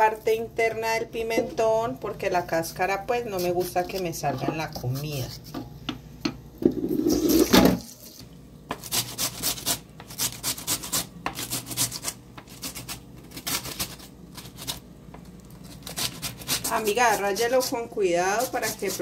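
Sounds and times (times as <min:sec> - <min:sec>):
tap water running: 0:06.6 - 0:08.3
pepper rasping on grater: 0:08.7 - 0:14.8, 0:15.6 - 0:19.0.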